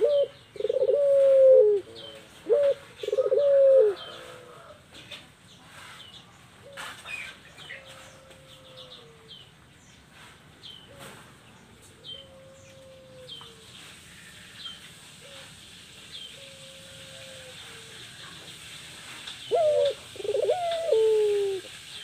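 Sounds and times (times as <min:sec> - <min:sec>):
dove cooing: 0:00.0 - 0:04.8, 0:12.0 - 0:13.6, 0:16.4 - 0:18.1, 0:19.4 - 0:21.9.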